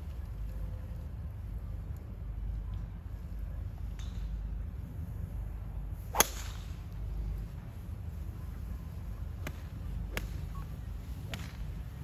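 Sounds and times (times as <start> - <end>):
fainter golf drive cracks: 6.1 - 6.8.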